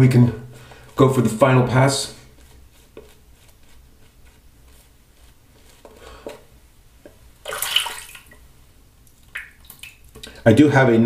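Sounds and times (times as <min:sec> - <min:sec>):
short rush of water: 0:07.4 - 0:08.4.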